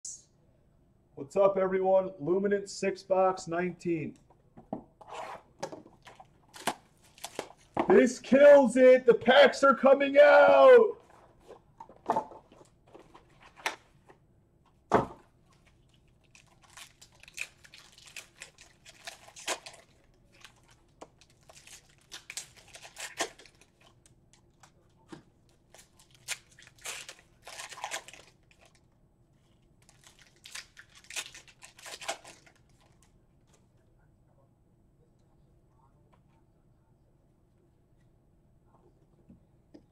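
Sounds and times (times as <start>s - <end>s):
cardboard tearing and rustling: 16.2s - 23.8s, 25.8s - 28.6s.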